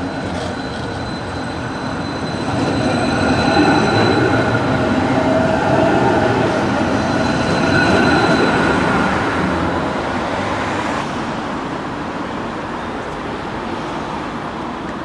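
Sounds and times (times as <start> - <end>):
thin tram whine: 0.0 - 10.1
street traffic noise: 0.0 - 15.0
tram wheels on rails: 0.0 - 15.0.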